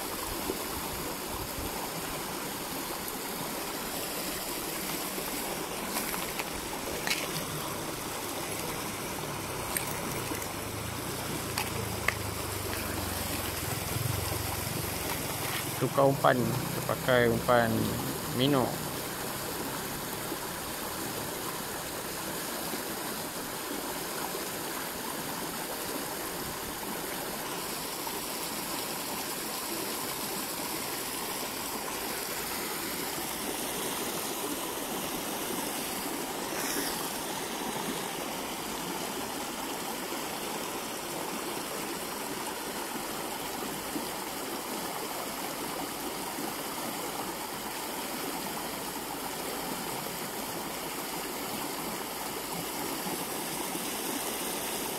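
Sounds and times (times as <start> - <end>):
stream rushing over shallows: 0.0 - 54.9.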